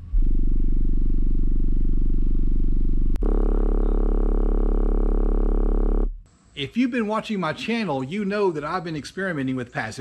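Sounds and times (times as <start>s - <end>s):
deep bass tone from subwoofer: 0.0s - 6.3s
vibrating flopping buzz: 0.0s - 6.3s.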